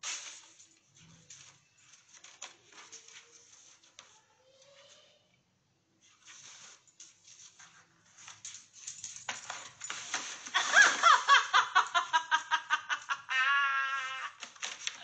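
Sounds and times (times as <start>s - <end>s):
faint scratchy rustles: 0.0s - 5.4s, 6.0s - 11.4s
person laughing: 10.5s - 14.5s.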